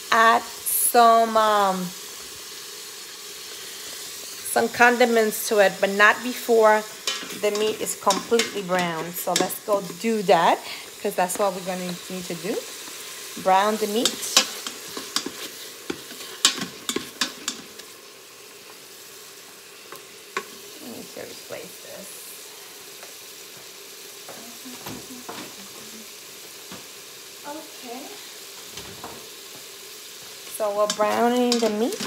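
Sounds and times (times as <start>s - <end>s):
meat sizzling in a pot: 0.0s - 32.0s.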